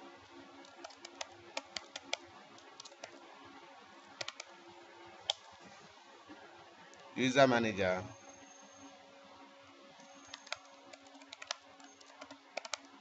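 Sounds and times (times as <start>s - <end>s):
faint steady hum: 0.0s - 13.0s
computer keyboard typing: 0.6s - 3.2s, 4.2s - 4.6s, 10.0s - 13.0s.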